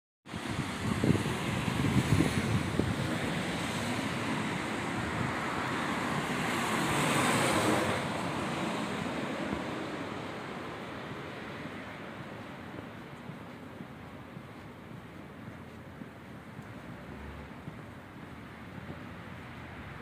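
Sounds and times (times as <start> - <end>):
car passing: 0.3 - 20.0
tyres hissing on wet asphalt: 0.3 - 20.0.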